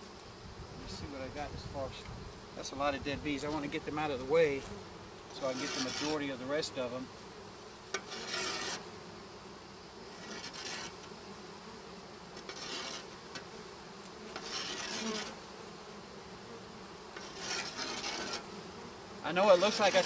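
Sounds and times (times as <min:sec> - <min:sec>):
honeybees buzzing: 0:00.0 - 0:20.0
rustling scrapes: 0:05.4 - 0:06.4, 0:07.9 - 0:08.8, 0:10.1 - 0:11.0, 0:12.4 - 0:13.1, 0:14.3 - 0:15.4, 0:17.2 - 0:18.6, 0:19.4 - 0:20.0.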